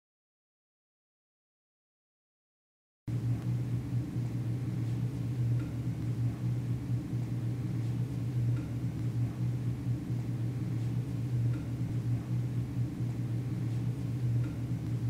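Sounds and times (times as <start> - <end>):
low hum: 3.1 - 15.0.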